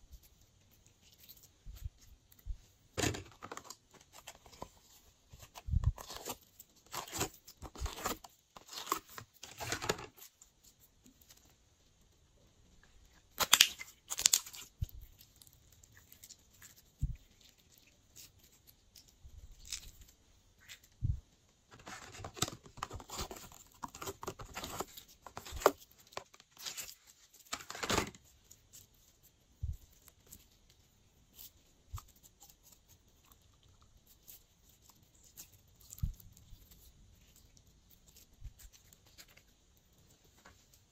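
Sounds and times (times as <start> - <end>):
slime crackling and tearing: 13.3 - 20.9.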